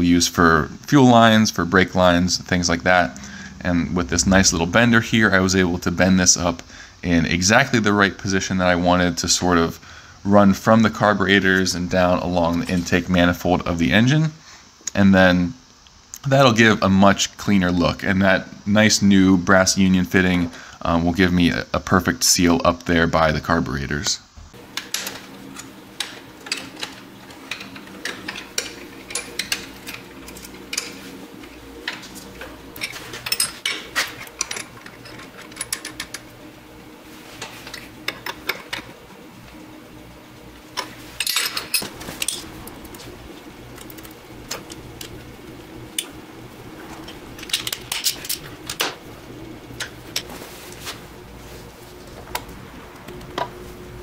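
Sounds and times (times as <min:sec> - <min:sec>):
faint steady hum: 0:00.0 - 0:54.0
hand tools clinking: 0:24.8 - 0:31.2, 0:31.8 - 0:36.3, 0:40.8 - 0:43.0, 0:47.0 - 0:49.0.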